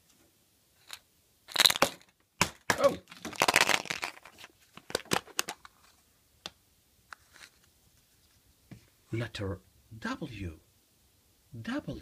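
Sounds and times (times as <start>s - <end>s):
plastic capsule clicks and scrapes: 3.1s - 5.9s.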